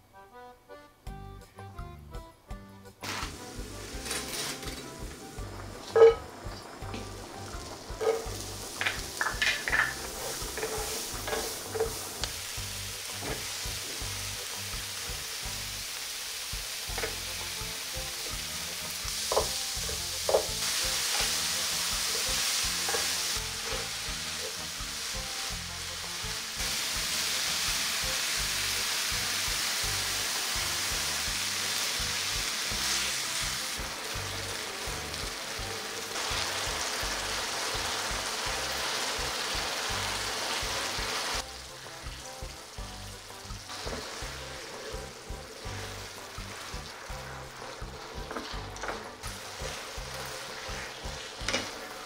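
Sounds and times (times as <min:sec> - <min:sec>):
meat and onion sizzling in pan: 0:03.0 - 0:52.0
spatula tapping pan: 0:07.9 - 0:12.4, 0:19.1 - 0:24.6.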